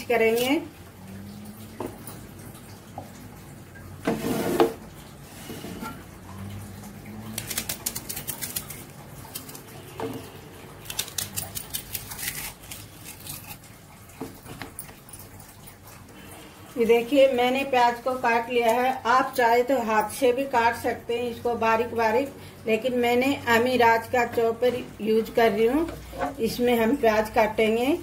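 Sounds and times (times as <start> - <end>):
knife slicing onion: 10.8 - 13.6
knife scrape: 10.9 - 13.6.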